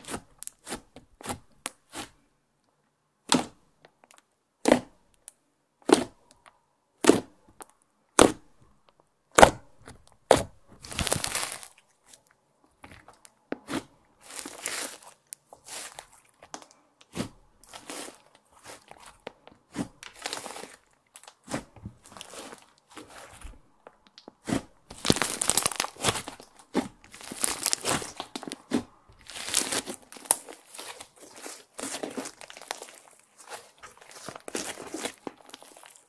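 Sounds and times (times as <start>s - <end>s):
slime crackling and squelching: 3.2s - 36.0s
slime popping: 10.3s - 11.8s, 12.8s - 36.0s.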